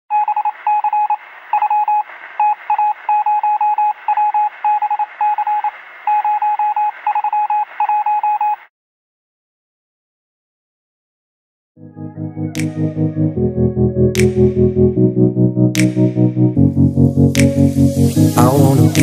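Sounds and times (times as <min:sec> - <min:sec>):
faint radio hiss: 0:00.4 - 0:07.8.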